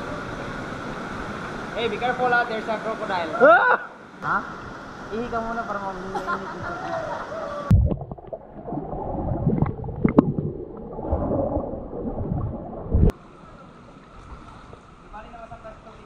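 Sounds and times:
steady water rush: 0.0 - 16.0
underwater gurgling and bubbling: 7.7 - 13.1
underwater knocks: 7.7 - 13.1.

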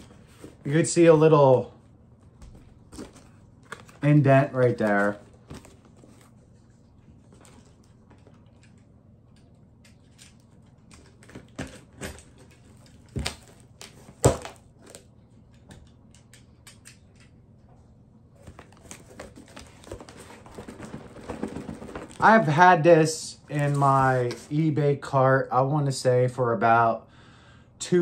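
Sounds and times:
cardboard box crinkling: 18.5 - 22.2.

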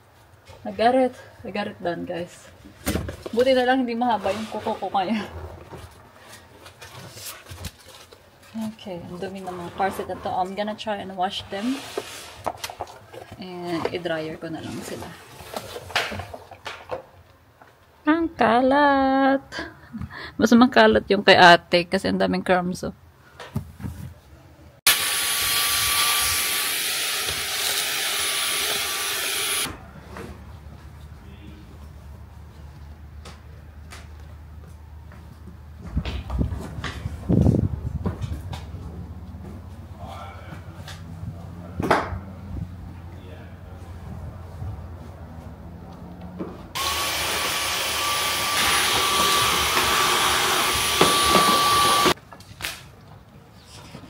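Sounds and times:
handheld vacuum cleaner whine: 24.9 - 29.7, 46.8 - 52.2.

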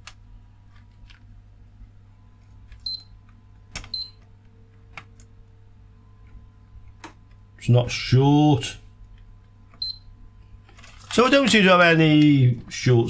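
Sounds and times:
multimeter continuity beeps: 2.8 - 3.2, 3.9 - 4.2, 9.8 - 10.1.

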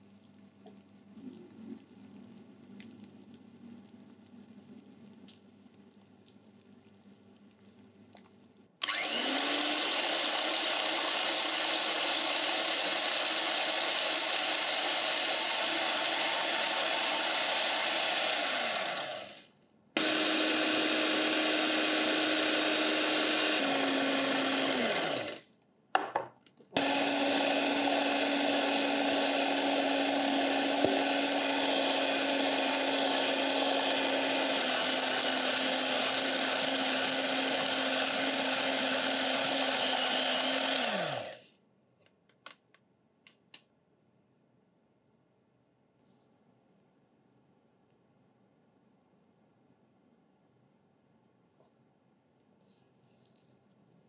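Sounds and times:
syrup bubbling in a saucepan: 0.0 - 8.8
electric hand mixer whining: 8.8 - 25.4, 26.8 - 41.4.

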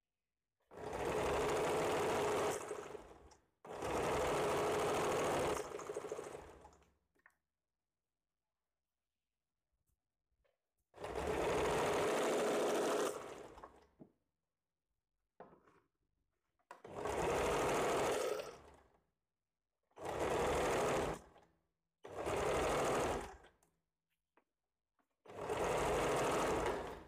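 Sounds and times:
sewing machine stitching: 0.7 - 6.9, 11.0 - 13.9, 16.7 - 19.0, 20.0 - 21.5, 22.1 - 23.6, 25.3 - 27.0.

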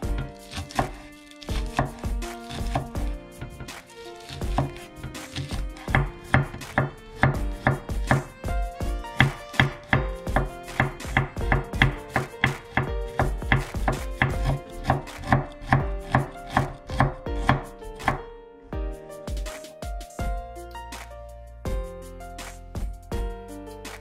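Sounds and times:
knife chopping on wooden board: 0.0 - 18.2.

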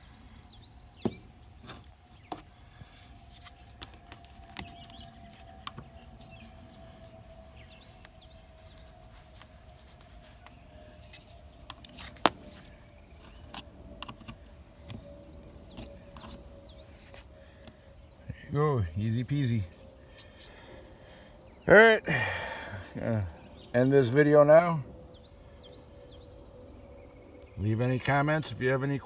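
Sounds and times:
faint steady background hum: 0.0 - 29.0.

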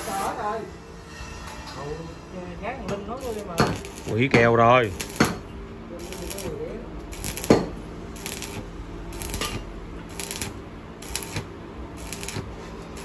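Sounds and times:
welding crackling bursts: 0.0 - 0.4, 3.2 - 5.4, 6.0 - 13.0.

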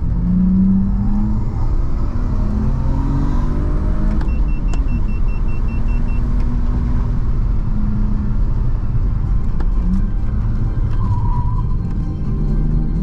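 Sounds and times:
car engine and road noise: 0.0 - 13.0
faint high beeps: 4.2 - 6.3.

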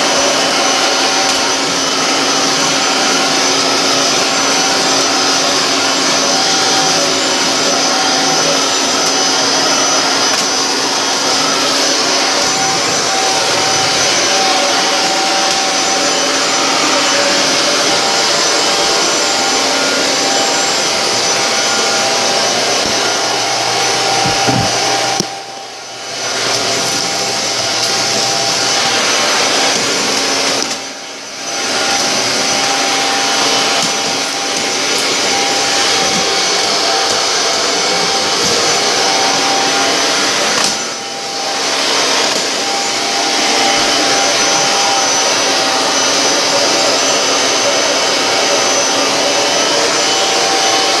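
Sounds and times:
vacuum cleaner running: 0.0 - 51.0.

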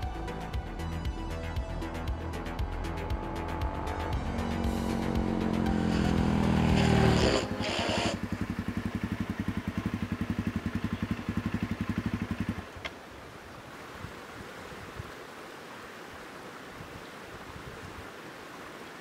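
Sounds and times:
creek rushing: 2.0 - 19.0
motorcycle engine idling: 3.0 - 13.0.

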